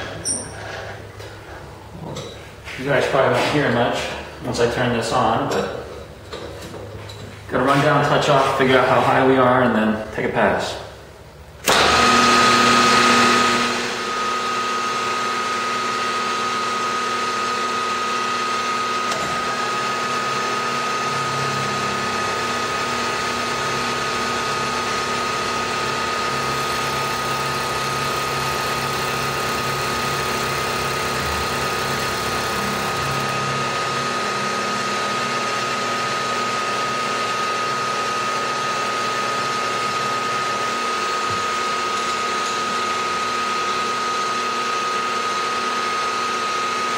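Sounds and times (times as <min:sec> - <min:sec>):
face mill cutting metal: 0:11.7 - 0:34.9
milling machine spindle whine: 0:11.7 - 0:46.9.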